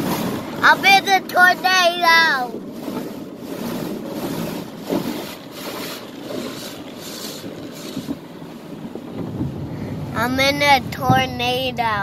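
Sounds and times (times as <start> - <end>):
water spray on window: 0.0 - 8.7
car wash brushes swishing: 0.0 - 9.2.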